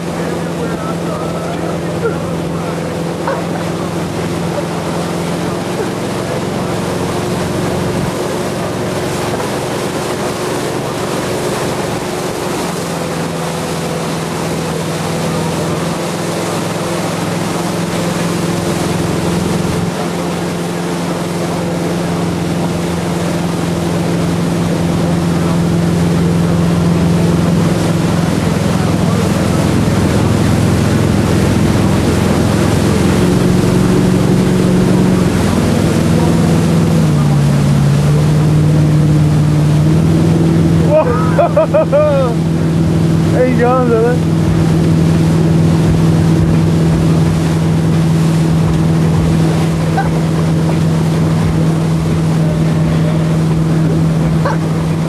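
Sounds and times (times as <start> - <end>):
boat engine hum: 0.0 - 55.0
boat wake rushing: 0.0 - 55.0.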